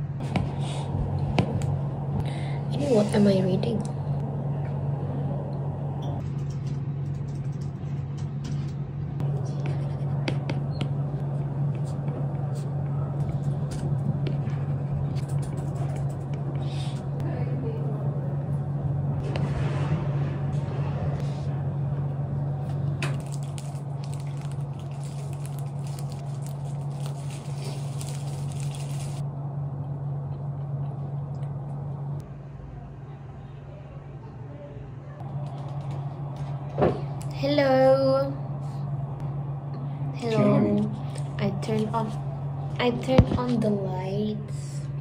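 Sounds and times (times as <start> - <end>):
air conditioner humming: 0.0 - 45.0
bites crackling: 23.1 - 29.2
plastic bag crinkling: 23.1 - 29.2.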